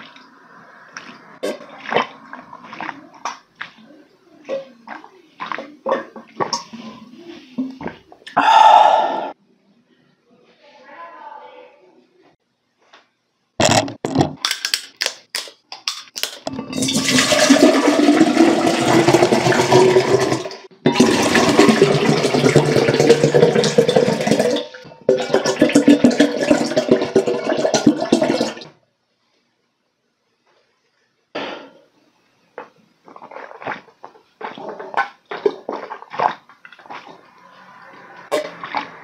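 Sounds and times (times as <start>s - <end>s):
water pouring into a glass: 16.6s - 28.6s.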